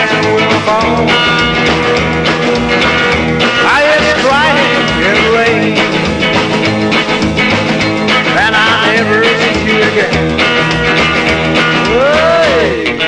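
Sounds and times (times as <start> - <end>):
rockabilly instrumental music: 0.0 - 13.0.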